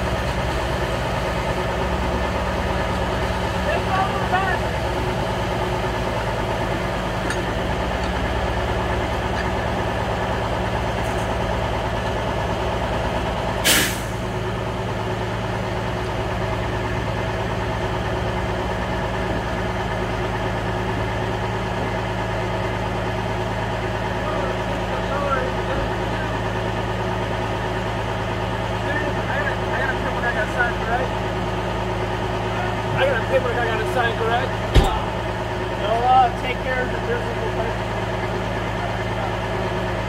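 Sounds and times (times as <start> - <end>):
truck engine idling: 0.0 - 40.0
loud hiss of air: 13.6 - 14.2.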